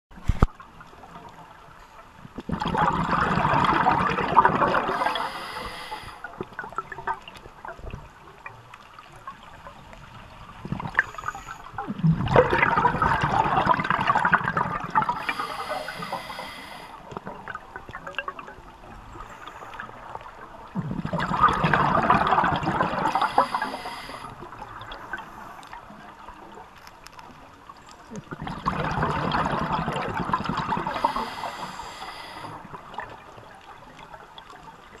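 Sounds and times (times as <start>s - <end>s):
underwater air bubbles gurgling: 0.6s - 35.0s
watery hiss: 4.8s - 6.3s, 14.9s - 17.0s, 22.9s - 25.6s, 30.8s - 32.7s.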